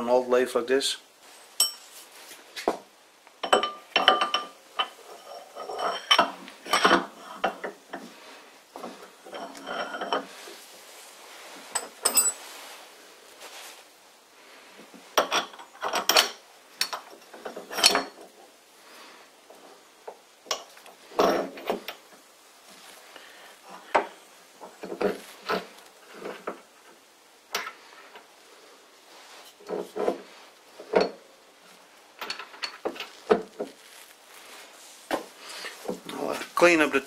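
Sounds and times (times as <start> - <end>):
light rubbing: 3.6 - 13.9
metal parts clinking: 11.8 - 12.4.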